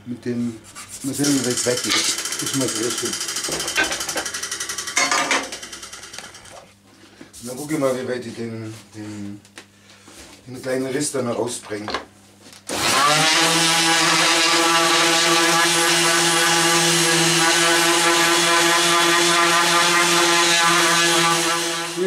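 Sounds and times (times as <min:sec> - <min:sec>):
orbital sander humming: 0:01.1 - 0:05.9, 0:12.8 - 0:22.0.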